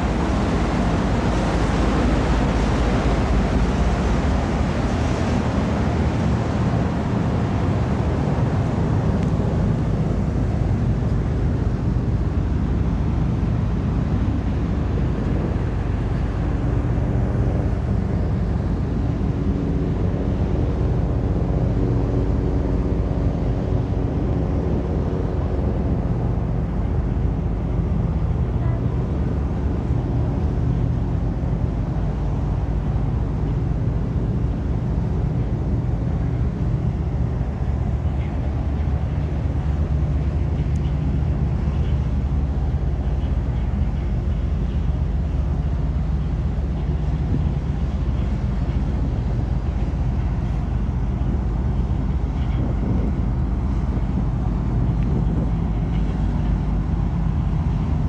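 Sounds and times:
ferry engine rumble and hum: 0.0s - 58.0s
wind buffeting microphone: 0.0s - 58.0s.

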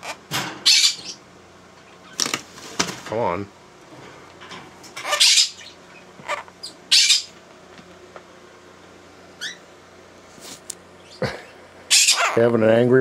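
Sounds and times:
parrot harsh calls: 0.0s - 1.2s, 5.0s - 7.3s, 9.4s - 9.6s, 11.9s - 12.5s.

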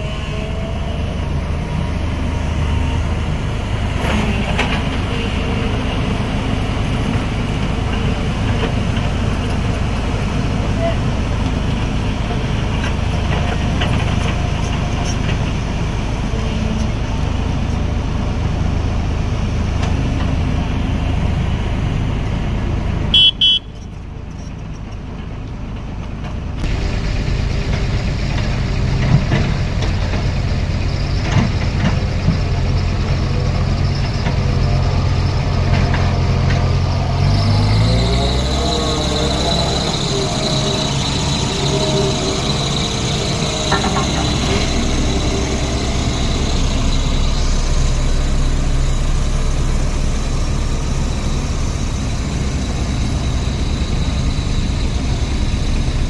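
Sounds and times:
excavator diesel engine running: 0.0s - 56.0s
vehicle horn toots: 23.1s - 23.9s.

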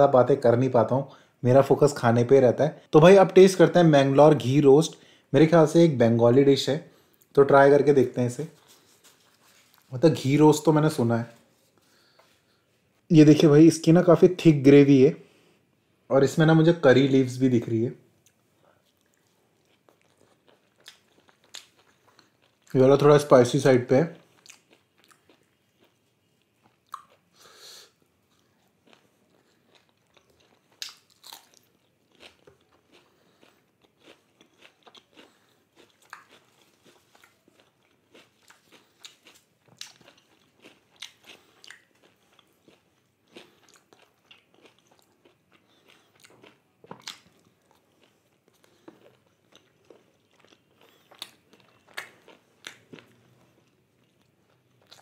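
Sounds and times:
wet chewing smacks: 28.4s - 55.0s.

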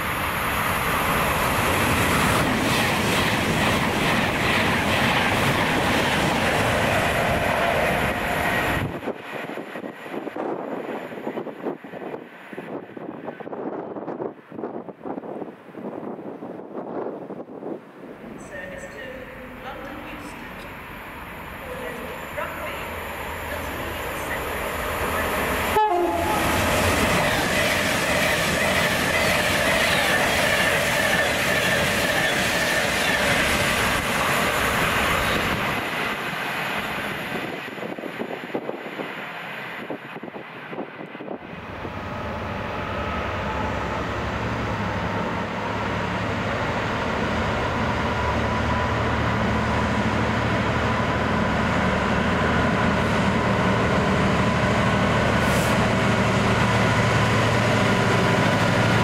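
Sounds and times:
train engine hum: 0.0s - 59.0s.

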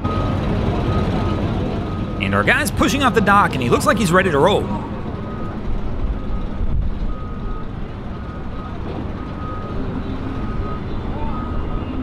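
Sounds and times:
low engine rumble: 0.0s - 11.8s
reversing alarm beeping: 0.0s - 12.0s.

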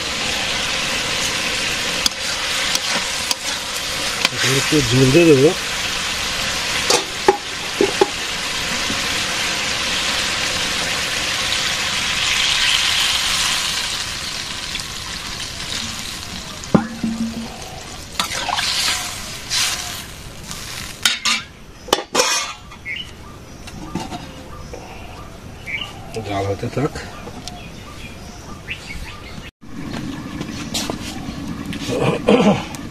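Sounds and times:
vegetables sizzling in hot oil: 0.0s - 22.4s
water poured into pan: 1.5s - 19.8s.

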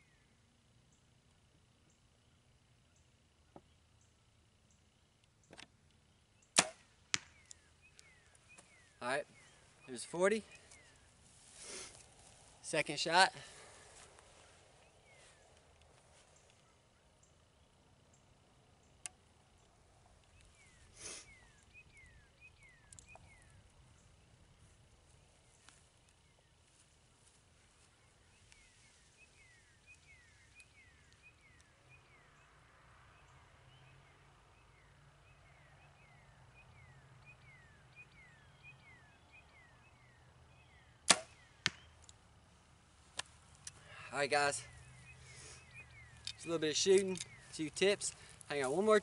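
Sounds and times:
bow string crack: 6.5s - 8.1s, 41.1s - 42.2s
arrow knock on target: 6.6s - 7.3s, 41.1s - 41.8s.

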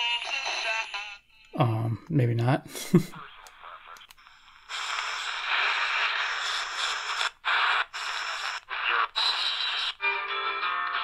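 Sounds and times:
radio static hiss: 2.8s - 11.0s.

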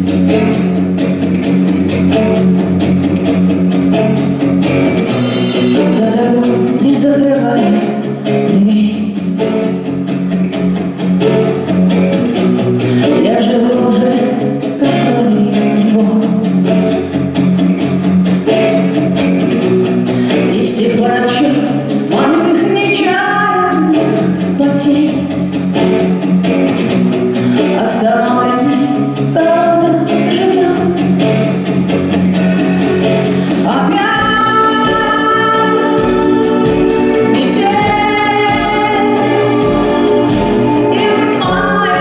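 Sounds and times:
instrumental accompaniment: 0.0s - 42.0s
woman singing pop song: 5.7s - 9.6s, 12.9s - 16.9s, 20.1s - 25.6s, 27.4s - 31.4s, 33.5s - 42.0s
sustained high tones: 32.0s - 42.0s
low beat: 35.7s - 42.0s.

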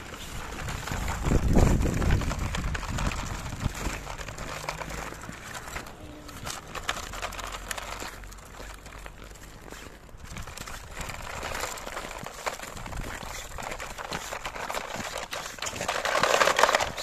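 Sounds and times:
wind rumble on microphone: 0.0s - 7.2s, 10.0s - 16.0s
crunching of icy snow: 0.0s - 17.0s
toy truck dragged on snow: 0.0s - 17.0s.

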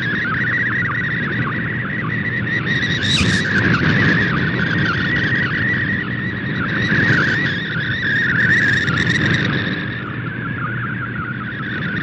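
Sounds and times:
high warbling radio tone: 2.6s - 4.6s
radio static: 2.8s - 4.0s.

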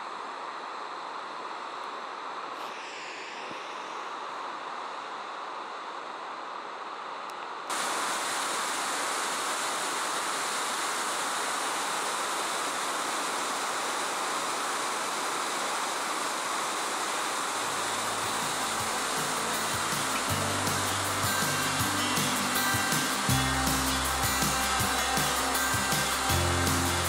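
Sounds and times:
waterfall rushing: 7.7s - 27.0s
low background music: 17.7s - 27.0s.

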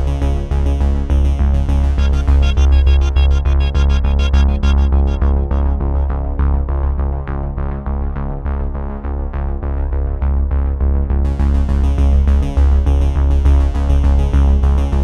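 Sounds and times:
steady low bass: 0.0s - 15.0s
synthesizer quick repeated notes: 1.8s - 6.7s.

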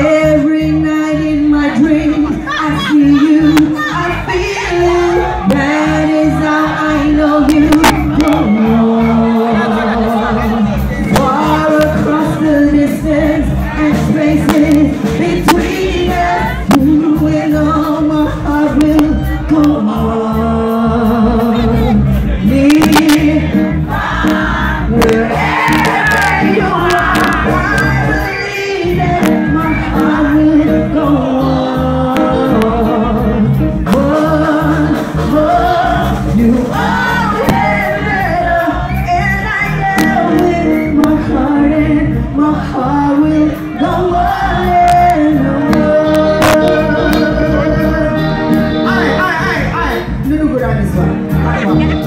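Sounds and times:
live reggae band playing: 0.0s - 52.0s
woman singing into microphone: 0.0s - 52.0s.

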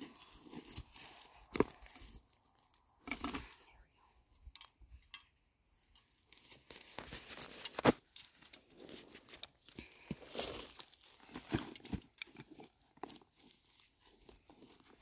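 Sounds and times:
footsteps in dry grass: 0.0s - 2.7s, 6.1s - 15.0s.

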